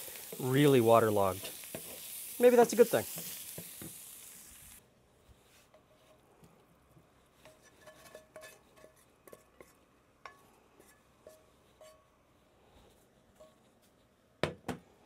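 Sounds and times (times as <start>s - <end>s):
pan sizzling: 0.0s - 4.8s, 7.2s - 12.1s
metal pan and spatula clinking on plate: 7.4s - 12.1s.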